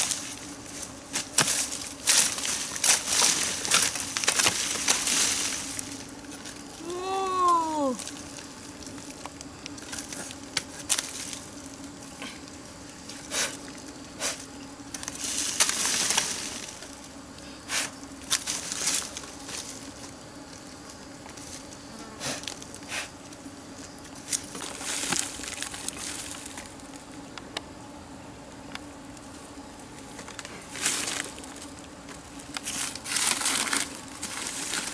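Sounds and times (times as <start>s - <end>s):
dry plant debris snapping and rustling: 0.0s - 13.9s, 14.8s - 17.0s, 18.2s - 20.2s, 24.0s - 27.2s, 29.9s - 34.9s
steady low hum: 0.0s - 34.9s.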